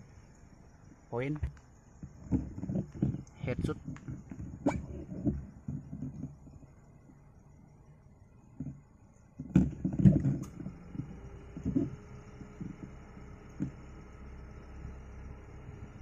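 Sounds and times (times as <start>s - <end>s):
soft thumps: 1.3s - 6.7s.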